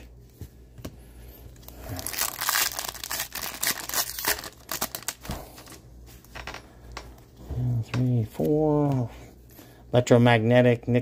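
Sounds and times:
foil wrapper tearing and crinkling: 0:01.7 - 0:05.8.

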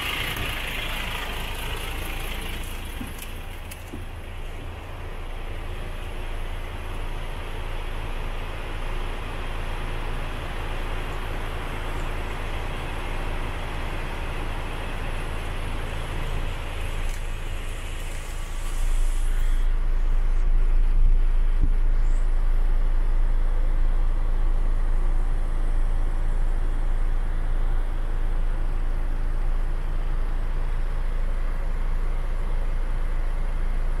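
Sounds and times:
diesel truck engine idling: 0:00.0 - 0:34.0
hiss: 0:17.4 - 0:19.7.

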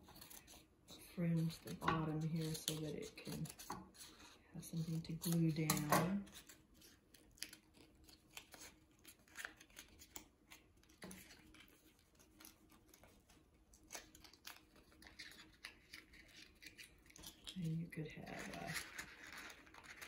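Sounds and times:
scissors snipping: 0:01.4 - 0:03.8, 0:04.8 - 0:06.5.

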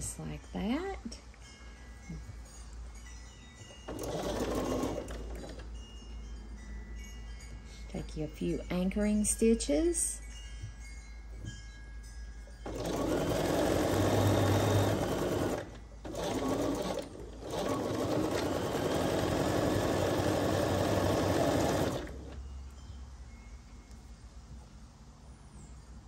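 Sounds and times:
sewing machine stitching: 0:03.9 - 0:05.6, 0:12.6 - 0:22.4.

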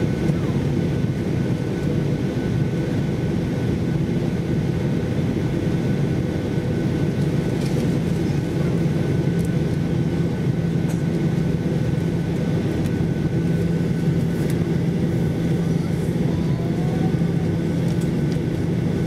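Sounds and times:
high engine whine: 0:00.0 - 0:19.0
jet engines low hum: 0:00.0 - 0:19.0.

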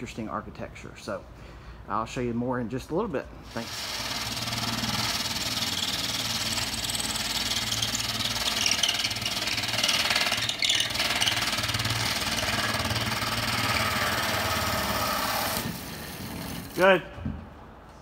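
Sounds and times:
power tool cutting drywall: 0:03.5 - 0:16.8.

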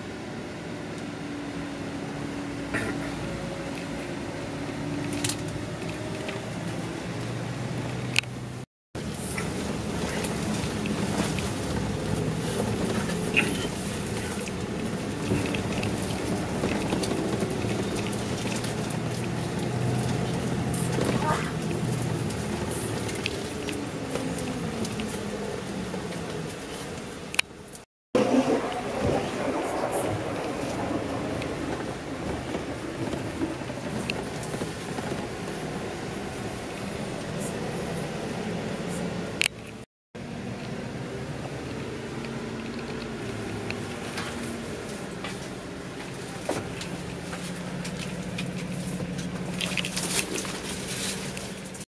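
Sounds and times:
bus engine drone: 0:00.0 - 0:51.9
tyre and road noise: 0:00.6 - 0:51.9
coach rumbling and rattling: 0:09.0 - 0:27.1, 0:28.2 - 0:37.4.

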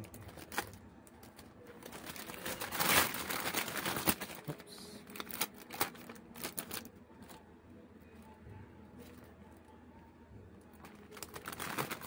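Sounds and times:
paper and plastic bag crinkling: 0:00.0 - 0:07.4, 0:10.7 - 0:12.0.

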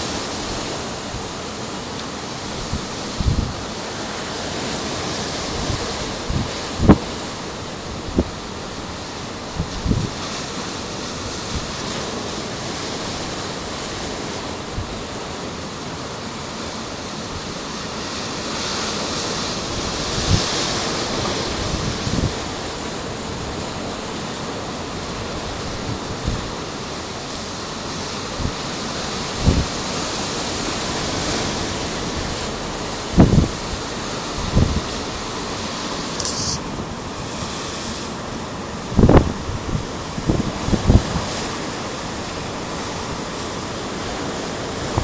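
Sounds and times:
wind buffeting the microphone: 0:00.0 - 0:15.8, 0:17.2 - 0:45.0
steady rushing wind: 0:00.0 - 0:45.0.

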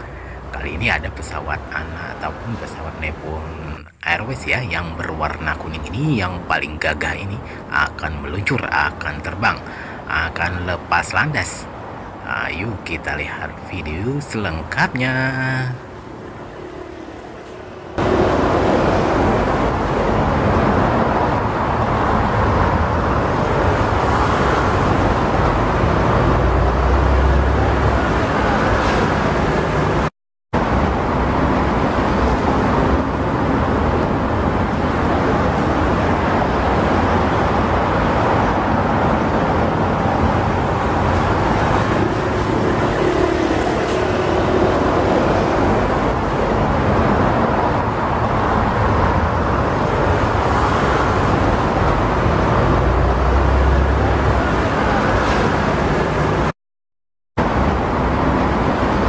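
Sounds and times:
jet engines rumbling: 0:00.0 - 0:56.5.

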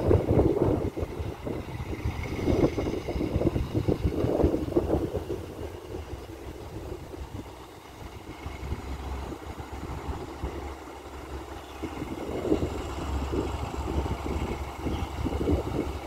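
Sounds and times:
diesel locomotive rumble: 0:00.0 - 0:16.0
wind buffeting microphone: 0:00.0 - 0:16.0.

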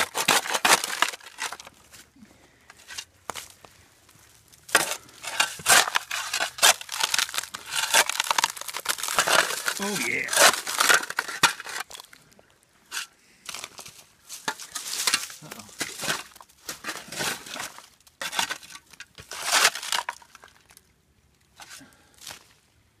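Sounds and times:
shovel scraping into coal: 0:00.0 - 0:01.8, 0:04.7 - 0:12.1, 0:12.9 - 0:20.3.

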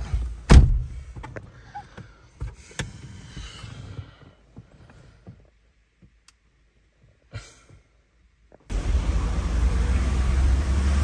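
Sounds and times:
low rumble and hiss outdoors: 0:00.0 - 0:11.0.

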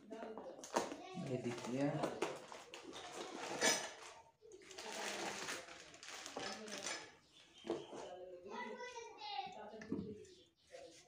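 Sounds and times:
scraping and small clatters: 0:00.0 - 0:08.7
cardboard and paper rustling: 0:00.2 - 0:08.2.

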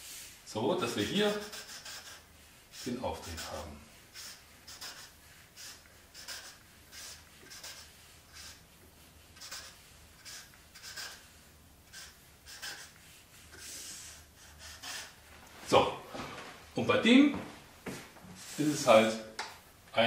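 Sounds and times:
marker scratching on paper: 0:00.8 - 0:15.3.

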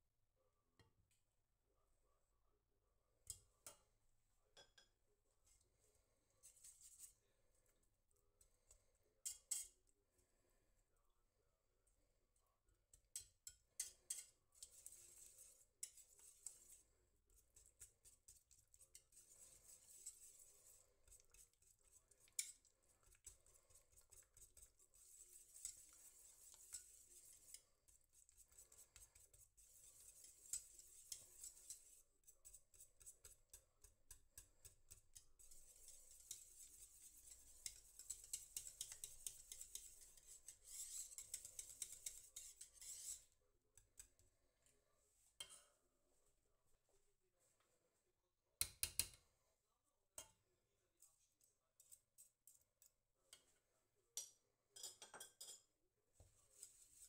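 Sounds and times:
whisk scraping a metal pot: 0:09.2 - 0:09.9, 0:13.0 - 0:44.2, 0:56.4 - 0:57.0.

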